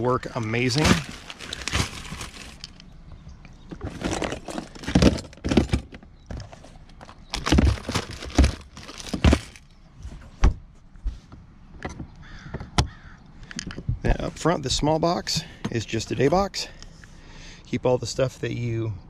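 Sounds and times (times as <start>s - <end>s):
plastic boxes clattering and rustling: 0.4s - 2.8s, 3.7s - 9.7s.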